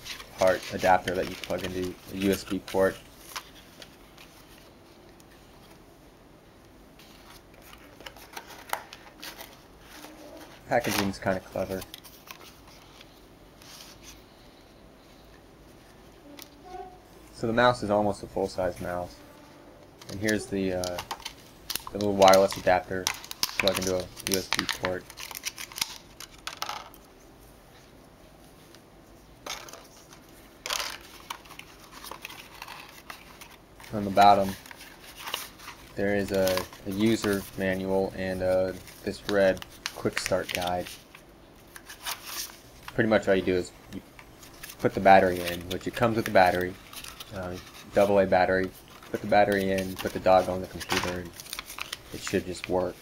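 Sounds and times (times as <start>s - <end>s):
cardboard being handled: 0.0s - 4.7s
plastic packaging rustling: 0.0s - 5.8s, 7.0s - 14.2s, 20.0s - 27.1s, 29.4s - 53.0s.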